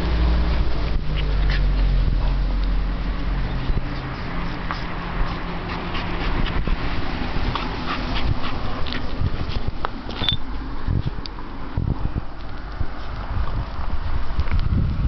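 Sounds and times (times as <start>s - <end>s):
steady low rumble: 0.0s - 15.0s
puppies play-fighting: 0.8s - 11.7s.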